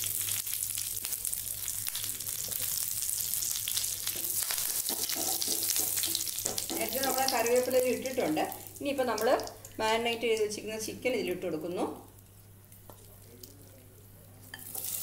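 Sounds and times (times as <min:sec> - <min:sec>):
leaves sizzling in hot oil: 0:00.0 - 0:10.7, 0:14.5 - 0:15.0.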